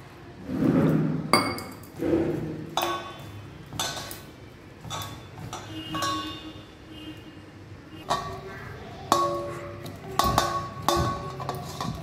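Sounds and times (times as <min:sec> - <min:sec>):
metal mixing bowl knocking: 0:01.4 - 0:06.5, 0:09.1 - 0:12.0.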